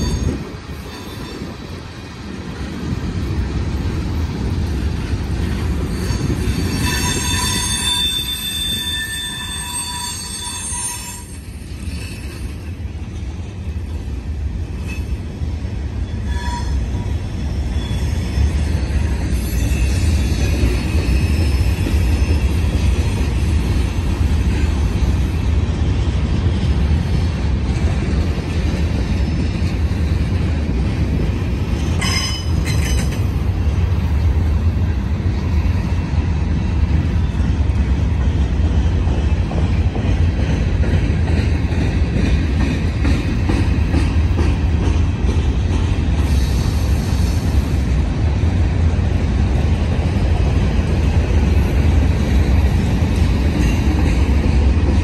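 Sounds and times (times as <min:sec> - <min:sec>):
train rumbling on rails: 0:00.0 - 0:55.0
high-pitched wheel squeal: 0:05.9 - 0:12.5, 0:16.1 - 0:16.8.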